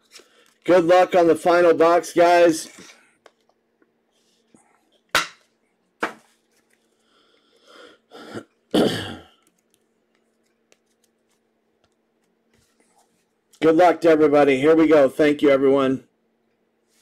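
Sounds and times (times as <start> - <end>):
man coughing: 8.2 - 9.4.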